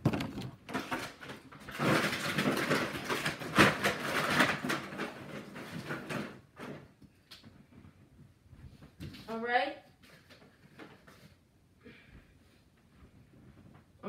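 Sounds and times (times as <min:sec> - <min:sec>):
packaging rustling and crinkling: 0:00.0 - 0:06.8.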